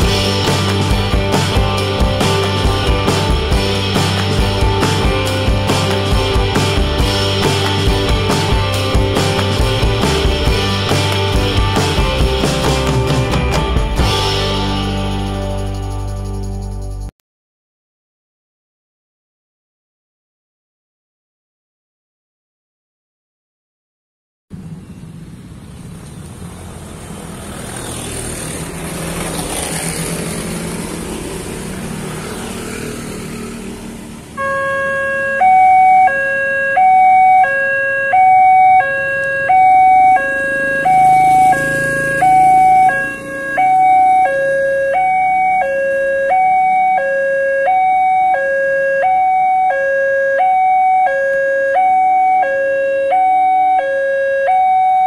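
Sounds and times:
street traffic: 0.0 - 17.1, 24.5 - 55.0
level crossing two-tone siren: 34.4 - 55.0.

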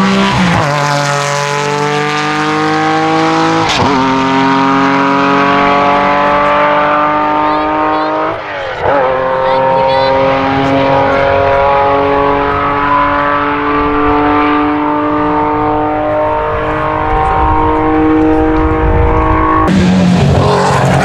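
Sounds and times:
car engine at high revs: 0.0 - 21.0
car engine rough rasp at low revs: 0.0 - 21.0.

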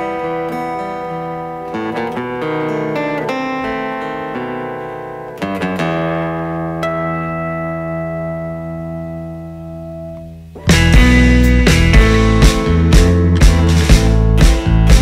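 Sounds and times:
acoustic guitar tango: 0.0 - 9.7.

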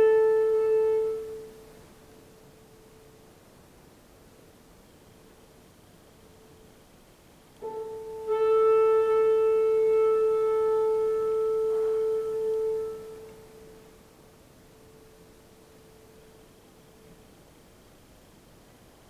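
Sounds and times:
woodwind long held note: 0.0 - 2.6, 7.6 - 17.2.

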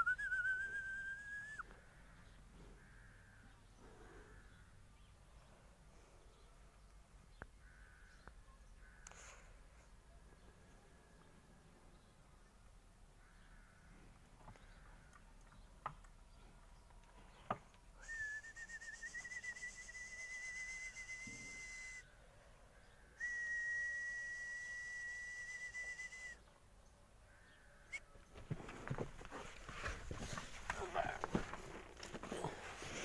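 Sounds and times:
long steady whistles: 18.0 - 22.1, 23.2 - 26.4
hooves scuffling in sand: 28.2 - 33.0.

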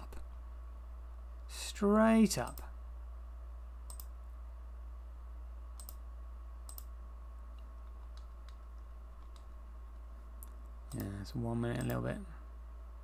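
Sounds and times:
low electrical hum: 0.0 - 13.0
computer mouse clicking: 3.9 - 4.1, 5.8 - 6.0, 6.6 - 6.9, 7.5 - 12.0.

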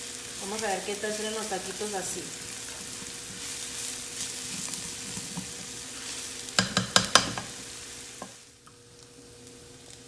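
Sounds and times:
onion sizzling in hot oil: 0.0 - 10.0
spatula stirring in skillet: 1.6 - 8.6.

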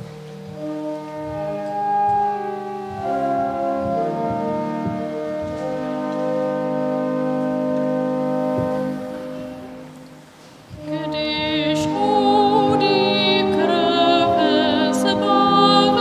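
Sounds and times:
church organ playing chords: 0.0 - 16.0.

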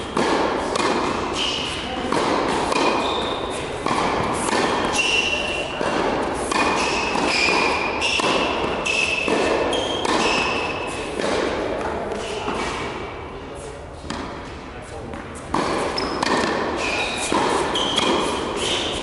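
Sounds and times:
racket hitting tennis ball: 0.0 - 13.1, 14.0 - 19.0
shoes squeaking on court: 2.7 - 11.0, 15.3 - 19.0.

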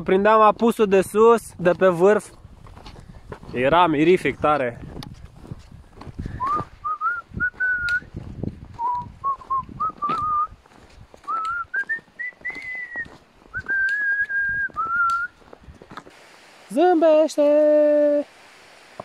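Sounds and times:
footsteps in snow: 0.1 - 17.9
man whistling a tune: 6.4 - 8.1, 8.7 - 10.6, 11.3 - 15.4.

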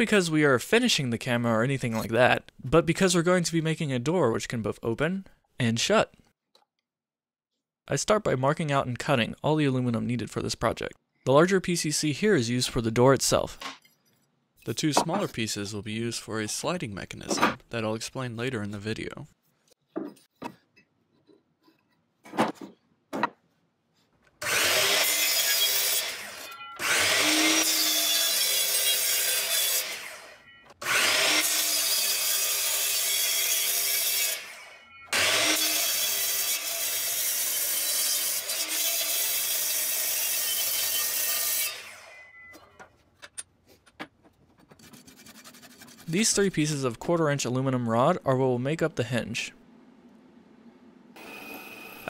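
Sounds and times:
miter saw cutting metal: 24.4 - 42.2, 51.2 - 52.0
saw blade winding down: 51.2 - 52.0.

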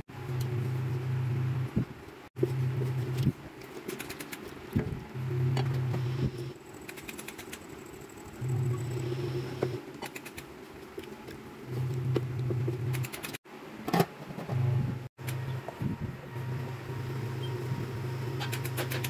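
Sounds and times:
low hum: 7.6 - 9.8, 14.5 - 19.0.

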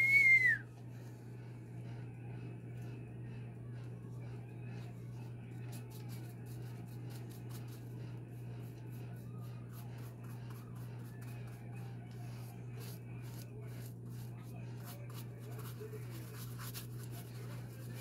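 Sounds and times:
steady low hum: 0.0 - 18.0
paintbrush strokes scratching: 4.2 - 18.0.

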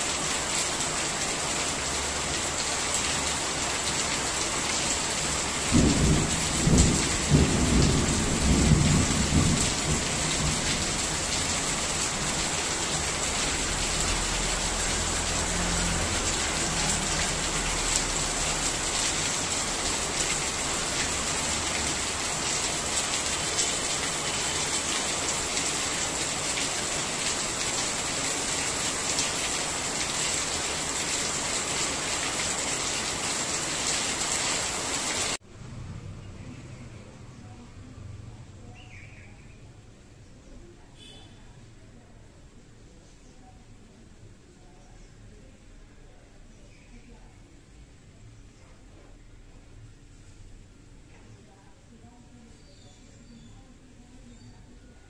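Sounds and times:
steady rain: 0.0 - 55.0
thunder rumbling: 5.4 - 12.4.

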